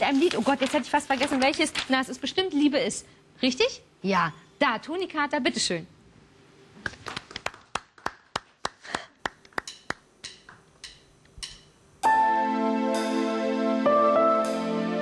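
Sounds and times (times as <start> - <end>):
percussion clicking an even beat: 9.6 - 12.2
band music: 12.0 - 15.0.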